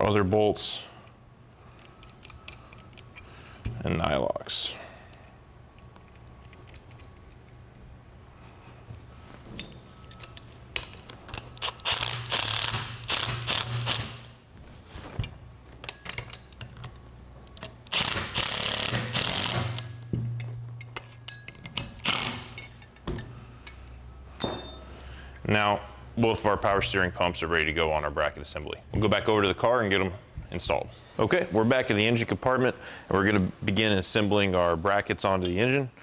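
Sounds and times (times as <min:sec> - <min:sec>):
metal clicks and clinks: 0:05.1 - 0:07.7, 0:09.6 - 0:12.0, 0:15.8 - 0:18.0, 0:19.4 - 0:24.9
impact driver running: 0:17.9 - 0:19.8.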